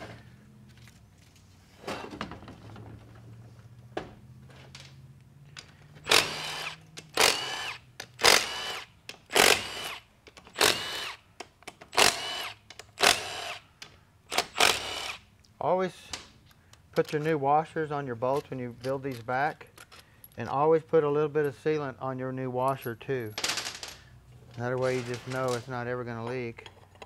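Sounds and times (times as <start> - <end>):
drill motor whirring: 6.0 - 11.2, 11.9 - 13.6, 14.3 - 15.2.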